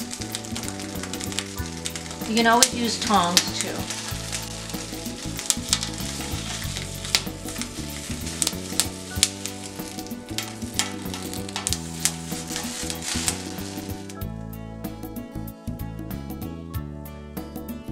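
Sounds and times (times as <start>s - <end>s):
sharp pops and crackles: 0.0s - 14.3s
vegetables sizzling: 0.0s - 14.3s.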